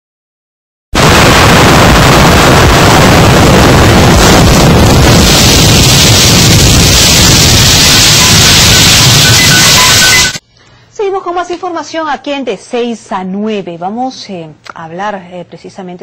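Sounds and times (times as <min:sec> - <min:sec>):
explosion roar: 0:01.0 - 0:10.4.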